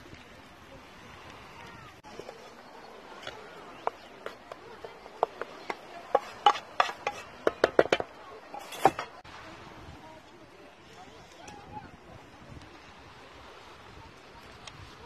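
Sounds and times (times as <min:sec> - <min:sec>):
wooden spoon knocking metal pot: 0:03.8 - 0:09.2.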